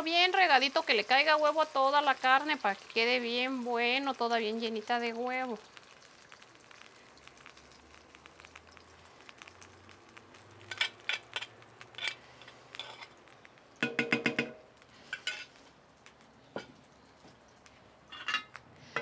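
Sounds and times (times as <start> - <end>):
meat sizzling: 0.0 - 19.0
metal spoon scraping clay bowl: 10.7 - 13.1
ringing taps on bowl: 13.8 - 14.6.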